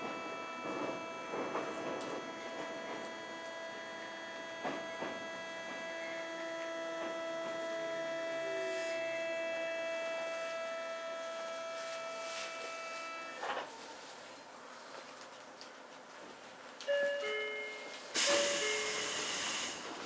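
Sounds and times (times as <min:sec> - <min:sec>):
train chopper high whine: 0:00.0 - 0:13.6, 0:18.1 - 0:20.0.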